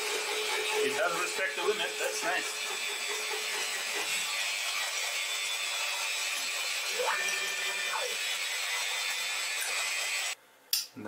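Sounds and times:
mini lathe running: 0.0 - 10.4
motor whine: 0.0 - 10.4.

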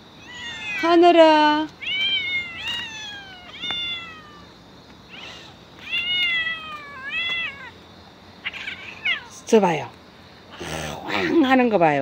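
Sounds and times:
cat meowing: 0.2 - 1.0, 1.7 - 4.5, 5.1 - 7.8, 8.4 - 9.4.

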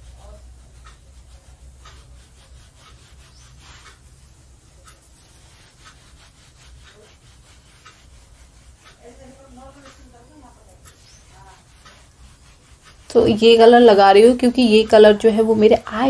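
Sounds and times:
makeup brush rubbing on skin: 0.0 - 16.0.

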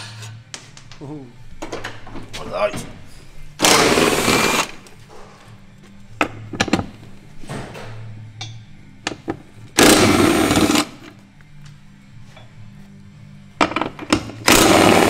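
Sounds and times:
pneumatic wrench running: 3.6 - 4.8, 9.8 - 11.1, 14.4 - 15.0.

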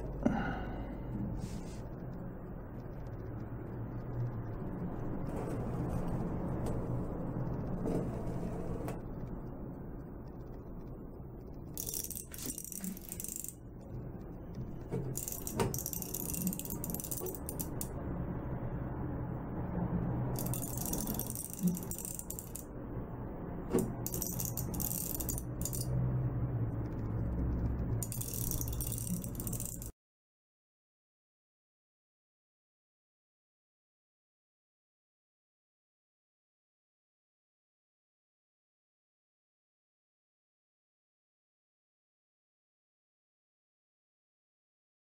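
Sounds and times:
metal paddle wheel rattling: 20.4 - 22.7.

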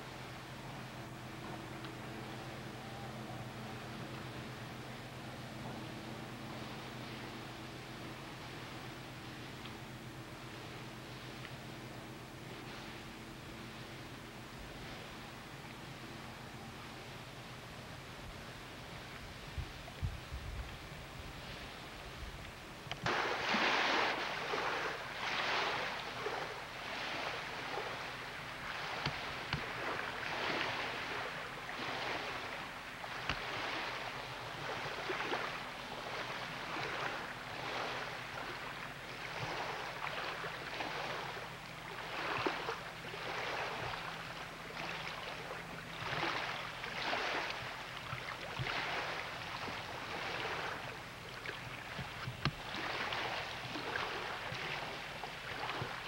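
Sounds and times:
lake waves washing against shore: 0.0 - 56.0.

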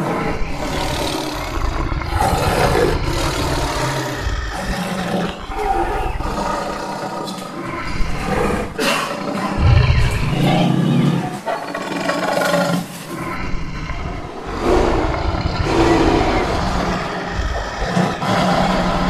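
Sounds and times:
tiger growling and roaring: 0.0 - 19.0.

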